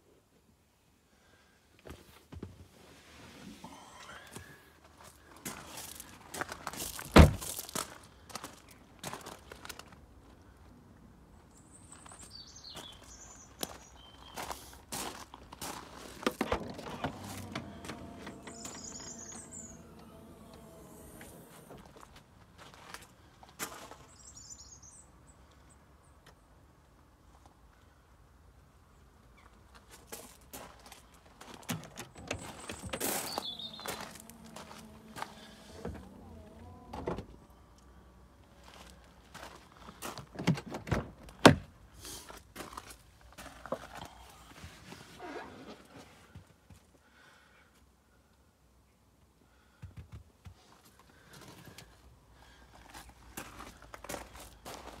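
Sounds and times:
tailgate motor humming: 16.3 - 22.1, 32.0 - 37.6
car door latch click: 16.4 - 21.8.

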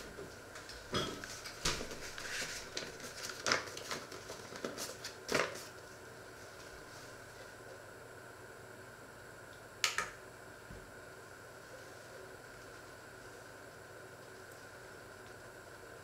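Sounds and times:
faint room hum: 0.0 - 16.0
paper rustling: 1.2 - 5.8.

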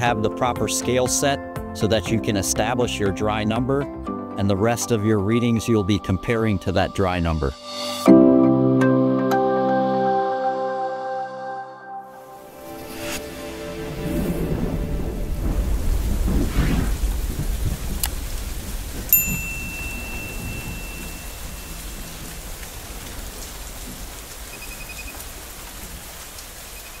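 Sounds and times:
deep rumbling swell: 12.4 - 18.8
bright ringing ping: 19.1 - 22.1
faint rapid tinkle: 19.1 - 22.3.

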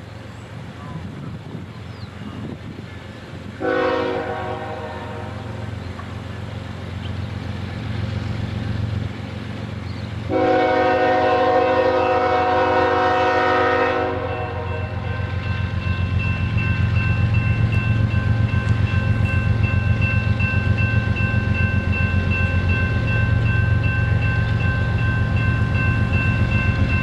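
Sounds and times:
locomotive air horn: 3.6 - 5.6, 10.3 - 15.4.

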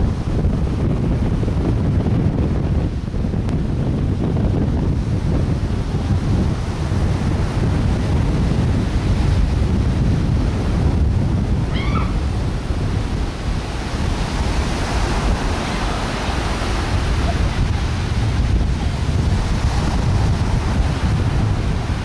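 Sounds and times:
surf: 0.0 - 22.0
wind buffeting microphone: 0.0 - 22.0
high-pitched animal cry: 11.7 - 12.2.

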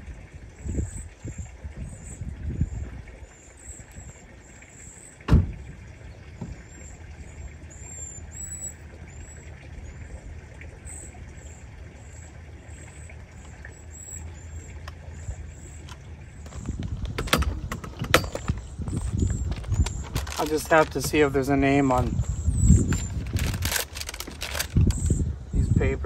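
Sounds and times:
wind on microphone: 0.0 - 4.3, 15.1 - 26.0.

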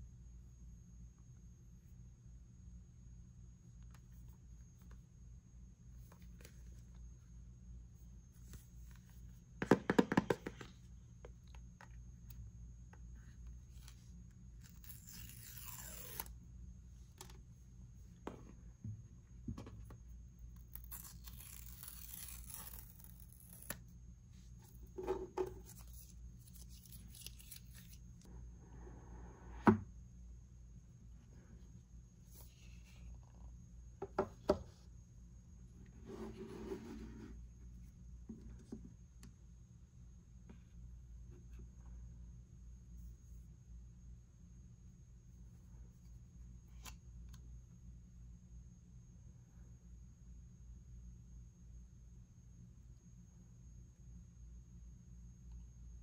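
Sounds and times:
paper seal tearing: 14.7 - 16.3, 20.6 - 23.8.

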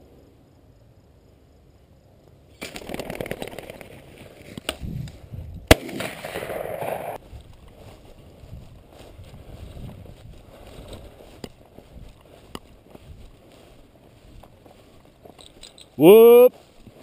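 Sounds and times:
grass rustling underfoot: 6.8 - 17.0.

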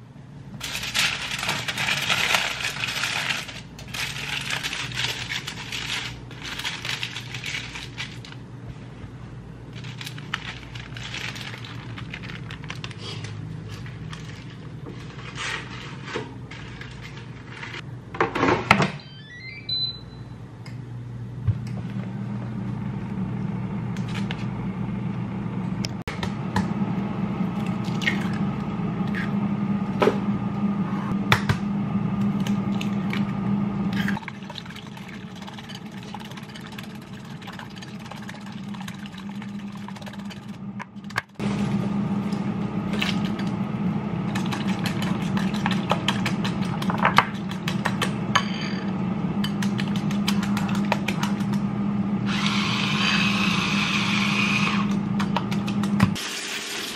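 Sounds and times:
steady low hum: 19.7 - 56.2.

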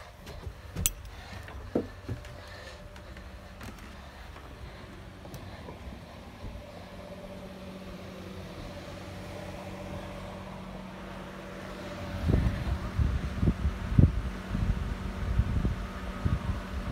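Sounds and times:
electric fan humming: 0.0 - 16.9
air buffeting microphone: 12.0 - 16.9.

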